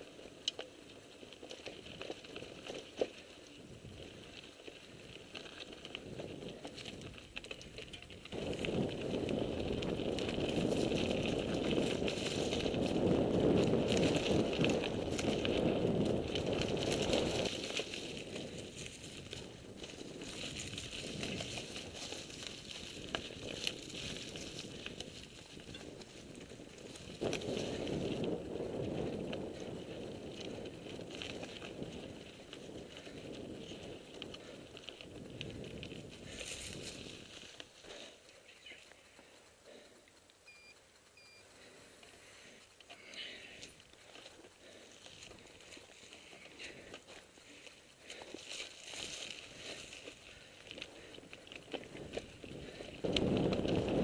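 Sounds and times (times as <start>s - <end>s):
bike tyres crunching on dirt: 0.0s - 40.2s, 41.0s - 54.0s
steady rushing noise: 0.0s - 40.2s
bike clicks and rattles: 0.0s - 54.0s.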